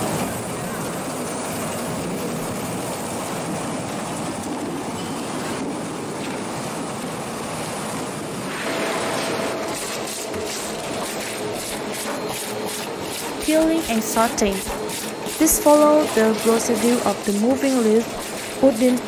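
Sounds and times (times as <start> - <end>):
fruit processing machinery running: 8.5 - 19.0.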